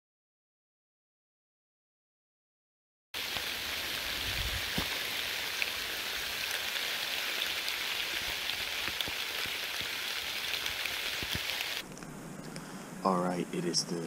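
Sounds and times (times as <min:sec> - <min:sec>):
sharp ticks of raindrops: 0:03.2 - 0:12.6
steady rain falling: 0:03.2 - 0:14.0.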